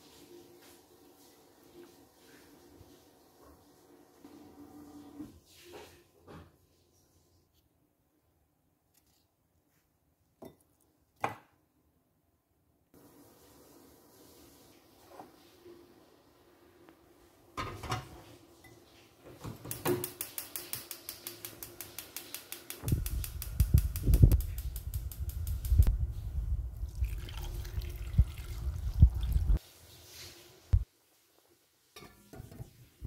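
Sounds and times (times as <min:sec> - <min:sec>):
gas igniter clicking rapidly: 0:19.8 - 0:25.9
gas flame rumble: 0:22.7 - 0:29.6.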